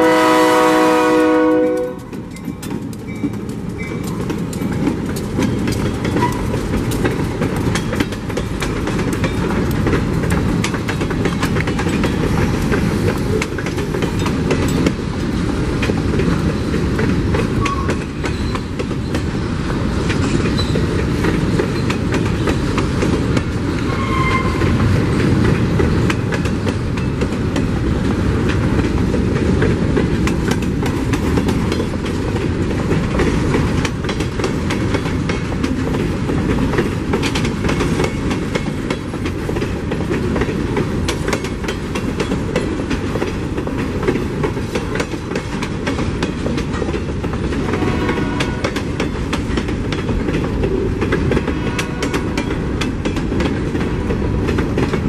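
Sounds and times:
train wheels rumbling on rails: 0.0s - 55.0s
wheels clicking over rail joints: 0.6s - 55.0s.

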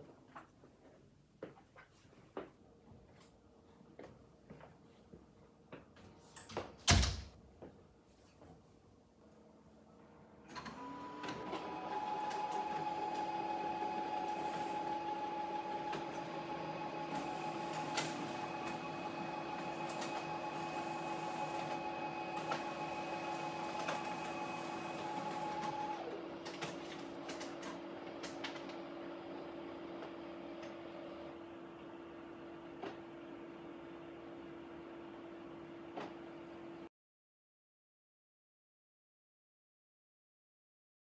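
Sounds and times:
printer motors whirring: 10.5s - 36.8s.

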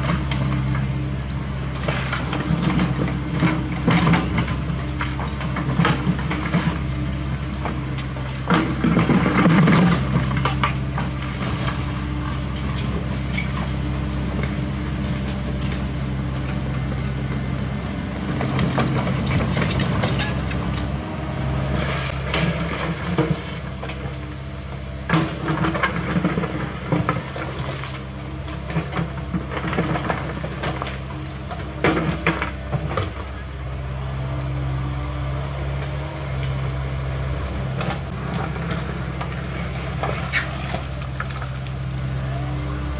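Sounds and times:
diesel engine running: 0.0s - 42.9s.

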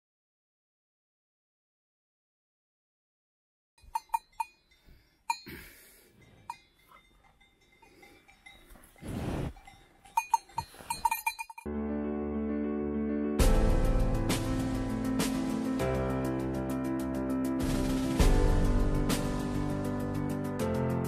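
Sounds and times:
cowbells clanking: 3.8s - 11.7s
cow breath rush: 7.8s - 11.4s
background music: 11.7s - 21.0s.

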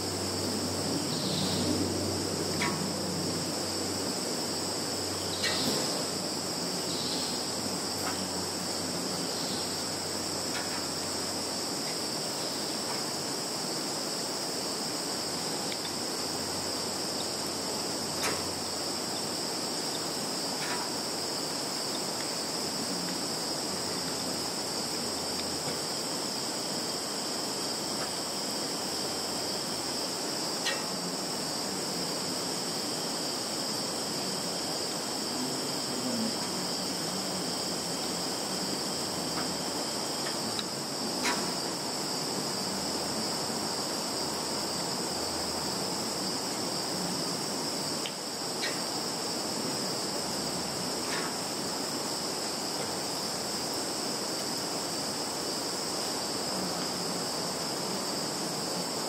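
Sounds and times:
insects chirring: 0.0s - 59.0s.

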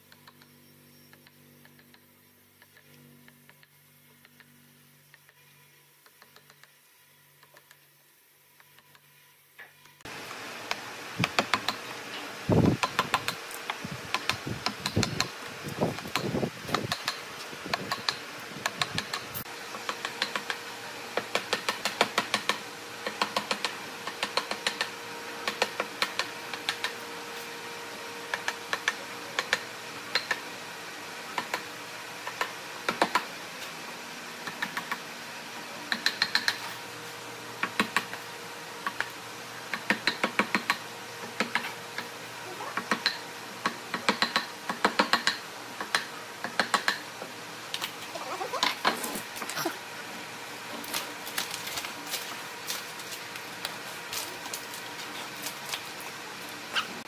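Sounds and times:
faint hum: 0.0s - 44.7s.

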